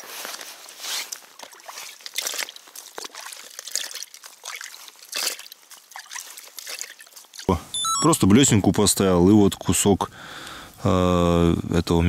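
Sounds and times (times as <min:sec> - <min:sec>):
water trickling and splashing: 0:00.3 - 0:07.6.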